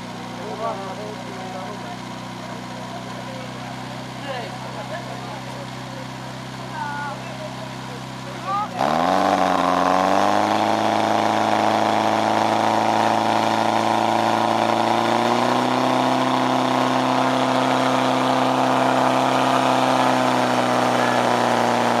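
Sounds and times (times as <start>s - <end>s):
pump engine running at high revs: 0.0s - 22.0s.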